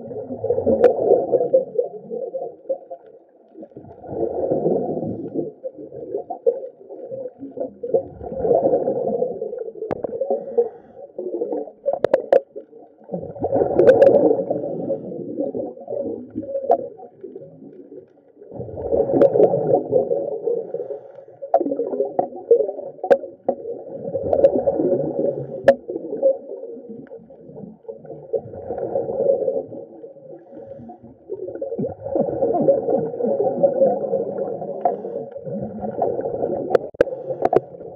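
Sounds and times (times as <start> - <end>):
underwater surging and gurgling: 0.0 - 37.9.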